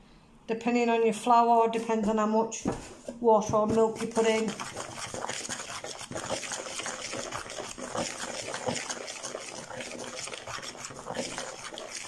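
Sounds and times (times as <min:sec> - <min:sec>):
knife scraping a mixing bowl: 0:03.5 - 0:12.0.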